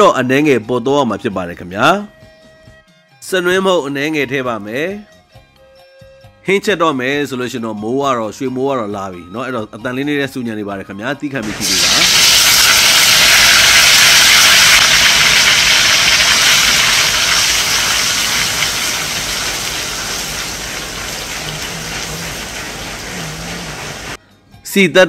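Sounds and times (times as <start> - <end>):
paste sizzling in hot oil: 11.4 - 24.2.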